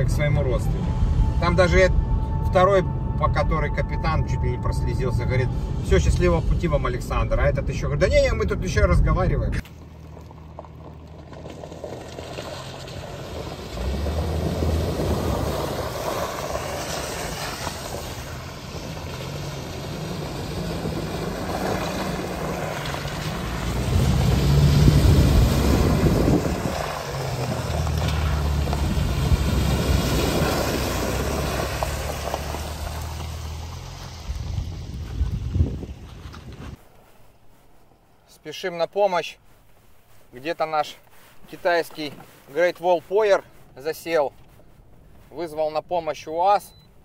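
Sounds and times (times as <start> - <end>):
car engines running: 5.0 - 36.8.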